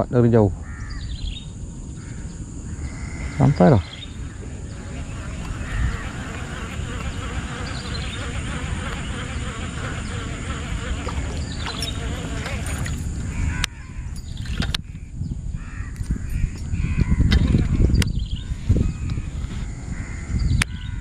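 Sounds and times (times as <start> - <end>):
crows cawing: 2.0 - 14.0.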